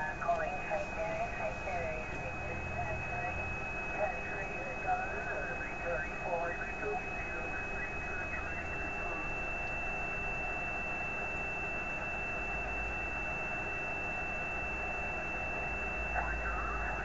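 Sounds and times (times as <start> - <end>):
radio hiss: 0.0 - 9.9, 15.4 - 17.0.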